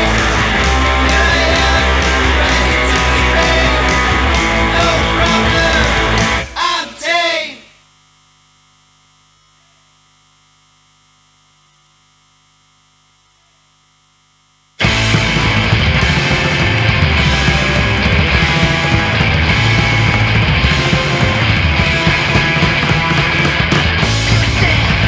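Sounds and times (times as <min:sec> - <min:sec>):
guitar bending notes: 0:00.0 - 0:06.6, 0:14.8 - 0:25.0
punk rock band playing: 0:00.0 - 0:06.6, 0:14.8 - 0:25.0
faint electrical hum: 0:07.0 - 0:14.8.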